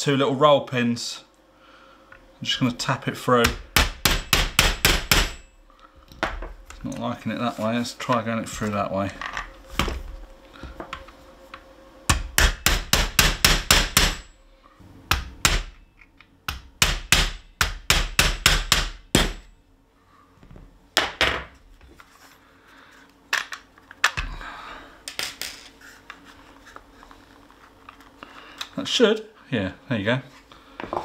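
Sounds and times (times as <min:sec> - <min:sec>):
hammer tapping metal punch: 0:03.4 - 0:05.5.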